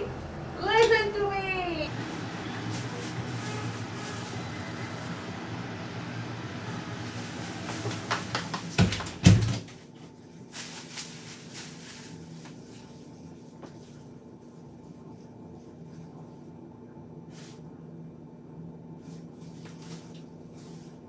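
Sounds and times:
glass sliding door closing: 6.3s - 9.6s.

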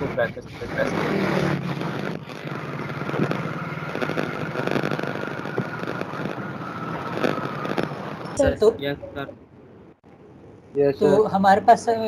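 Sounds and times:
faint high whine: 0.0s - 9.2s
steady background noise: 0.0s - 12.0s.

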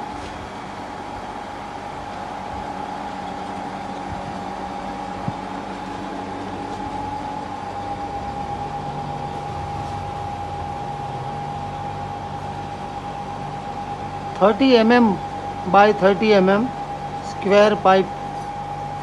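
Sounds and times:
high whine: 0.0s - 19.0s
mechanical hum: 0.0s - 19.0s.

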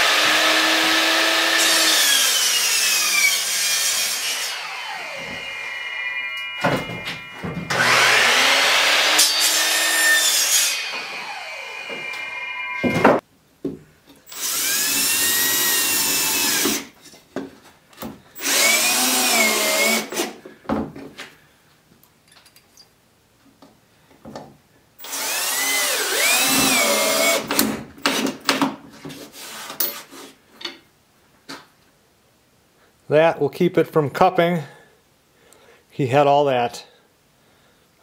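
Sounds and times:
power drill motor: 0.0s - 10.0s, 14.3s - 16.8s, 18.4s - 20.2s, 25.0s - 27.5s.

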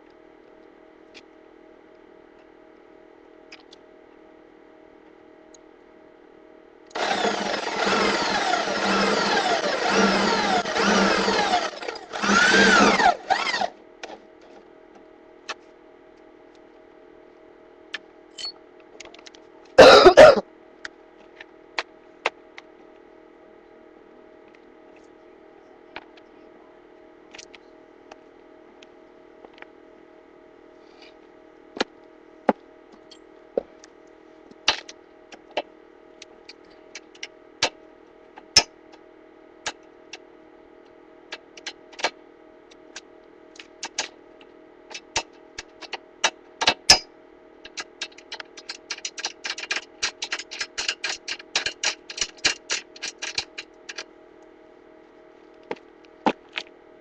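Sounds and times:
steady low hum: 0.0s - 57.0s
fast clicking: 47.7s - 54.1s.

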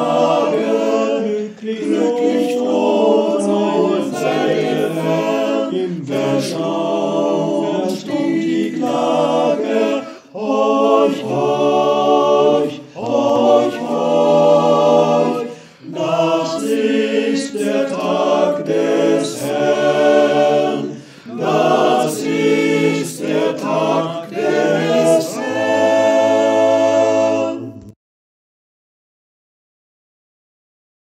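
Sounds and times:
men's choir singing a cappella: 0.0s - 28.0s.

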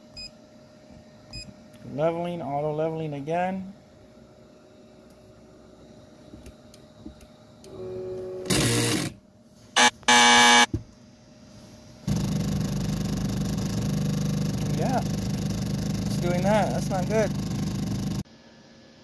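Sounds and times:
steady noise with low hum: 0.0s - 7.8s, 8.4s - 19.0s
stepper motors whining and buzzing: 7.7s - 9.1s, 9.8s - 10.7s.

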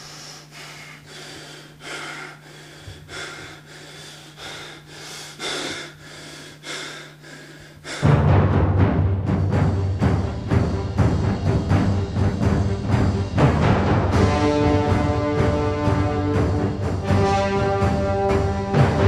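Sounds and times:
man breathing hard: 0.0s - 8.1s
steady low hum: 0.0s - 19.0s.

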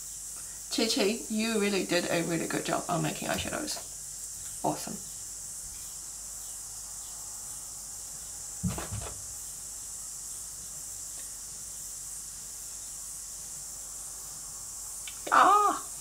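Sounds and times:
recording hiss: 0.0s - 16.0s
soft low thud: 8.6s - 9.3s.

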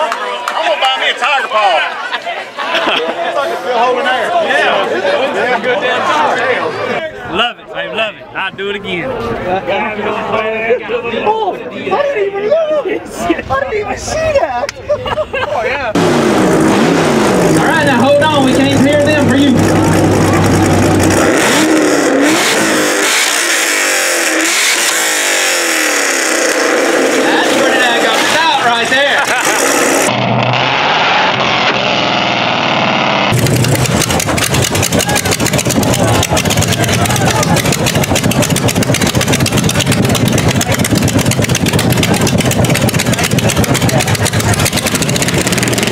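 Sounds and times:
car engine revving: 16.0s - 45.9s.

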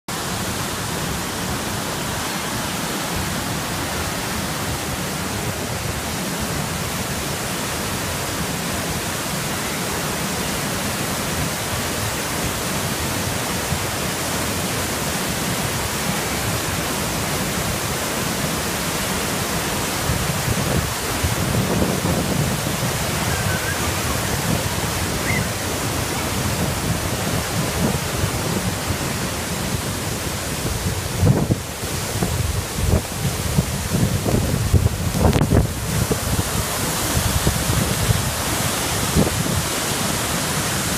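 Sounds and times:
river rushing through rapids: 0.1s - 40.9s.

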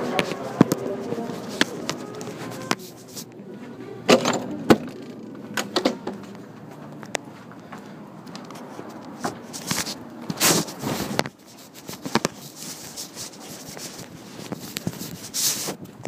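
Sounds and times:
phone handling rustling and scraping: 0.1s - 3.4s, 8.2s - 16.0s.

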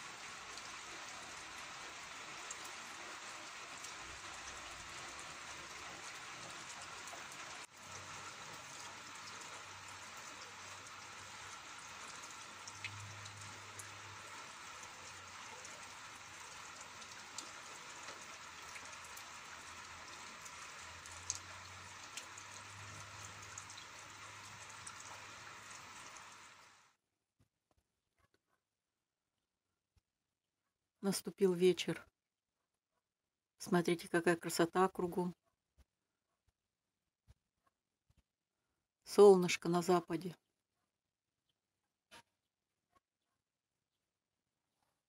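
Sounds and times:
steady rain falling: 0.0s - 26.8s
raindrops ticking: 0.1s - 26.4s.

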